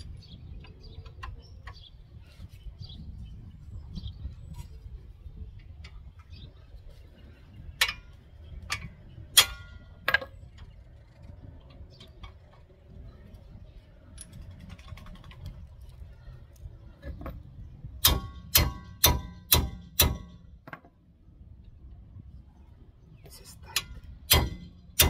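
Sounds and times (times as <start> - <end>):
tools striking metal: 8.7 - 10.2, 18.0 - 20.4, 23.7 - 25.0.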